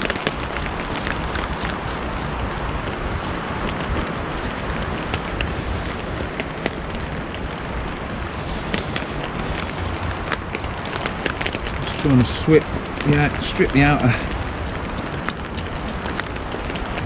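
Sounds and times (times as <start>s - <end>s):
raindrop ticks: 0.0s - 17.0s
steady rain falling: 0.0s - 17.0s
wind rumble on microphone: 0.0s - 17.0s.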